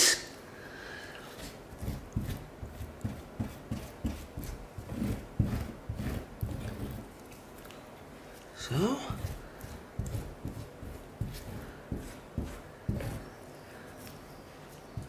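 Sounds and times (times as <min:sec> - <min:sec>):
gloved hand rubbing grout: 0:01.3 - 0:07.3, 0:08.6 - 0:13.4.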